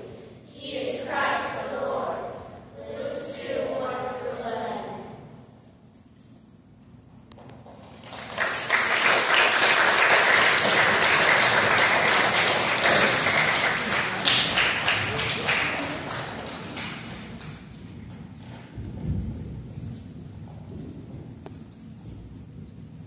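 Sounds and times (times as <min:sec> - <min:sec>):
audience applauding: 0:07.7 - 0:17.8.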